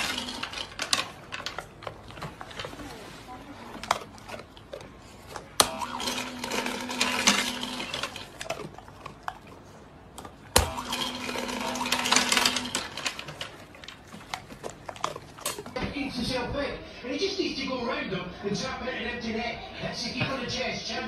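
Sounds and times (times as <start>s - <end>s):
kibble rattling into tray: 0.0s - 2.9s, 10.6s - 15.8s.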